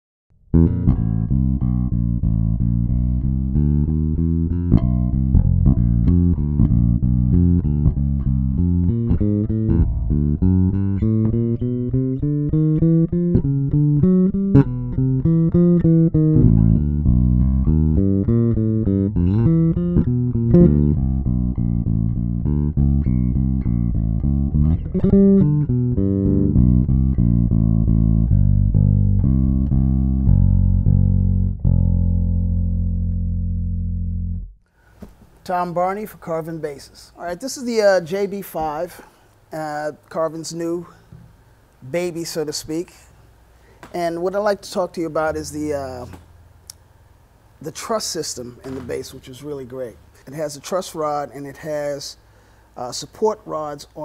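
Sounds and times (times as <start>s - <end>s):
bass guitar played with fingers: 0.4s - 34.7s, 44.9s - 46.9s.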